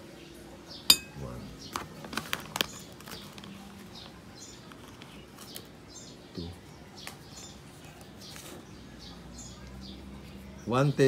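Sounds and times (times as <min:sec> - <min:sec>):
spoon knocking ceramic bowl: 0:00.9 - 0:01.2.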